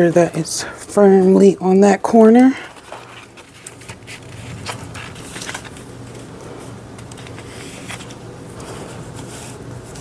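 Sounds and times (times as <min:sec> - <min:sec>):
low steady hum: 0:00.0 - 0:10.0
plastic film crackling: 0:02.6 - 0:06.3.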